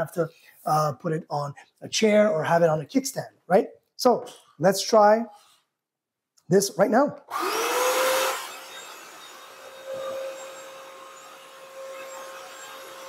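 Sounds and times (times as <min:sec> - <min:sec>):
vacuum mop motor whine: 0:07.3 - 0:13.0.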